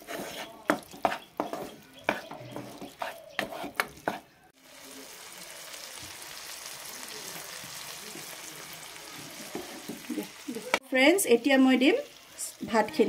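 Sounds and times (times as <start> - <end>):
wooden spatula scraping a pan: 0.0 - 4.3, 9.2 - 10.3
food sizzling in a pan: 4.6 - 13.0.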